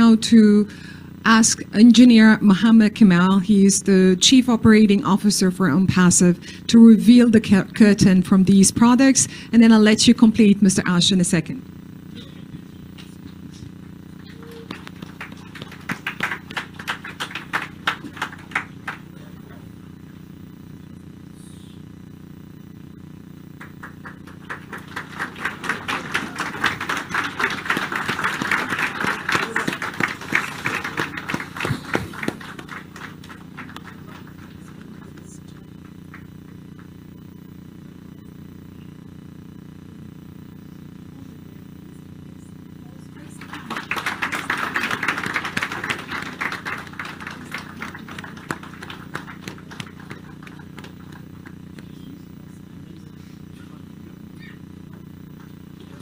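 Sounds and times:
low steady hum: 0.0s - 56.0s
audience clapping: 12.9s - 19.8s, 23.6s - 36.9s, 43.2s - 52.0s, 54.9s - 56.0s.

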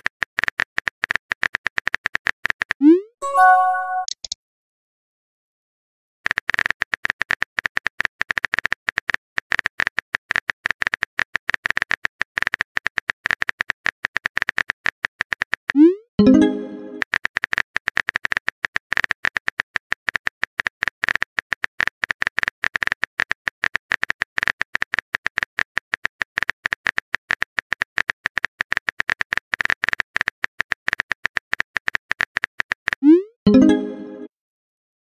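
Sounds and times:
phone keyboard typing clicks: 1.7s - 4.4s
message sent swoosh: 2.8s - 4.1s.

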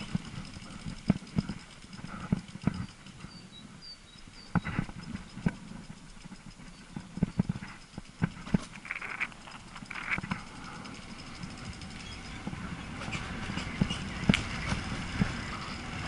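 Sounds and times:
bike knocks and rattles: 0.0s - 3.5s, 4.4s - 16.0s.

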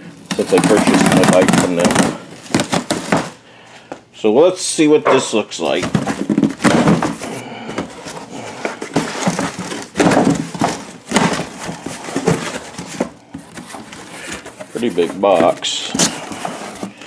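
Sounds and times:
cardboard box being opened: 0.3s - 3.4s.

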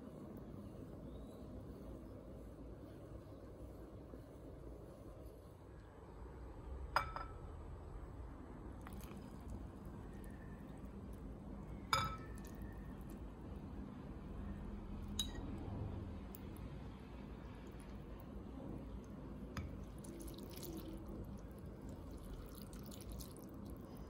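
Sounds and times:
broth stirring: 17.0s - 24.0s.

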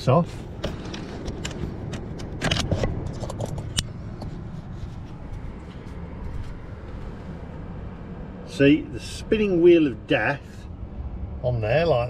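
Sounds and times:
steady low rumble: 0.0s - 12.0s
camera handling clicks and rustles: 0.6s - 3.9s.

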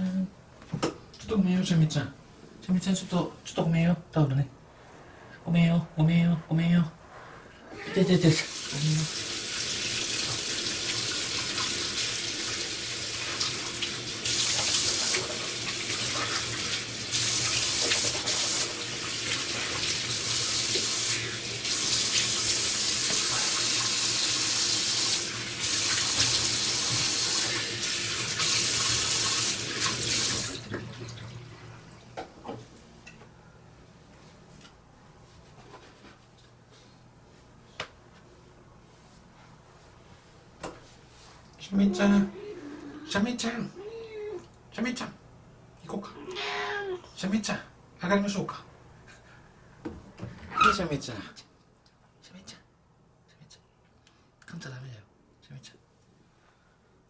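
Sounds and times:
water running: 7.8s - 32.2s.

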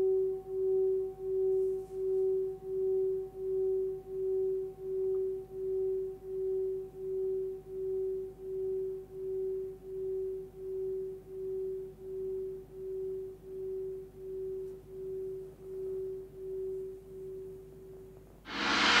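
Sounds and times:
singing bowl ringing: 0.0s - 17.0s
loud gong stroke: 18.5s - 19.0s.

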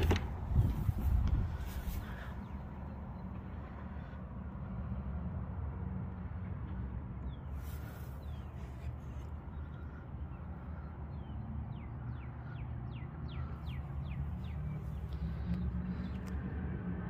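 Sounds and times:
steady low rumble: 0.2s - 4.4s.

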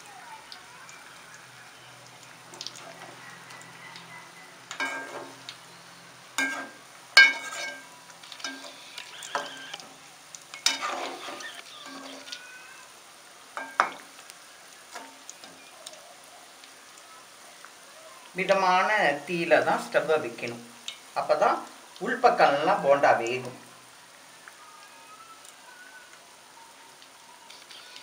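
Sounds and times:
food deep-frying in oil: 0.0s - 28.0s
ladle scraping metal pot: 6.4s - 9.8s, 10.5s - 12.4s.

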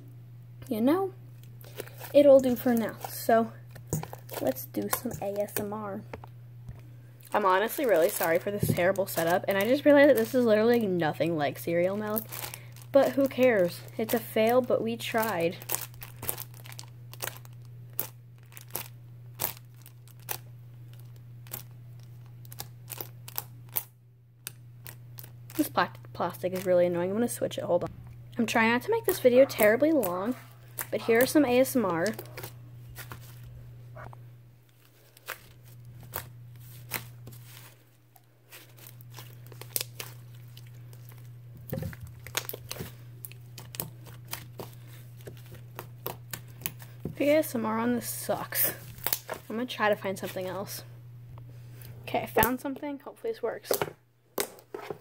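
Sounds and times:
plastic sheet crinkling: 1.4s - 5.7s, 7.2s - 23.9s, 24.8s - 27.0s, 34.7s - 47.2s.

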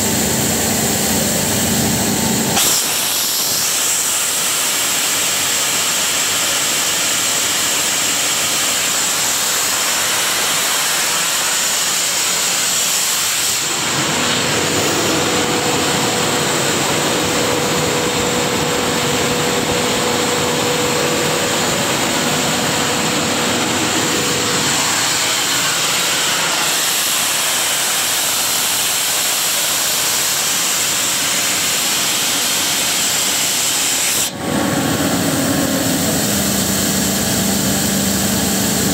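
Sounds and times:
air compressor hissing: 0.0s - 38.9s
diesel engine hum: 13.7s - 27.5s, 34.3s - 38.9s.

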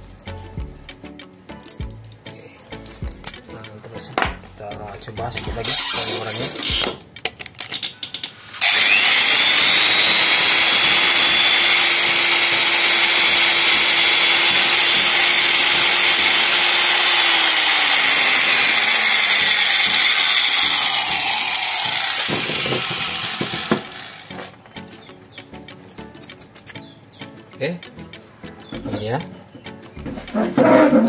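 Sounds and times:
electric drill boring into wall: 5.6s - 7.0s, 8.5s - 24.5s.

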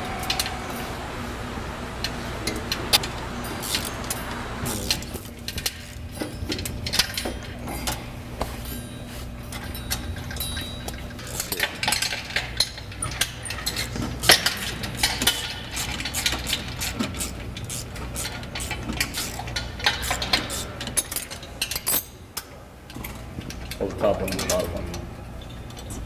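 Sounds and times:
steady low hum: 0.0s - 26.0s
metal tools clinking on fittings: 8.7s - 26.0s.

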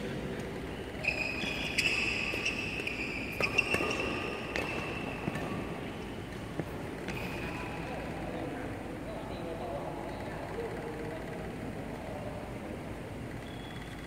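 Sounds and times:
court shoes squeaking: 0.0s - 8.7s, 13.3s - 14.0s
racket hitting shuttlecock: 1.5s - 7.8s.

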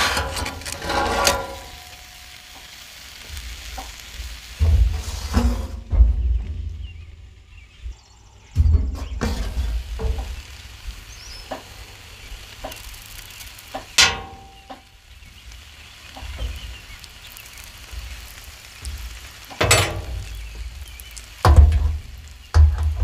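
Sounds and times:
metal clank: 0.0s - 2.1s, 14.0s - 14.8s, 19.6s - 20.3s
butter sizzling on griddle: 0.0s - 23.0s.

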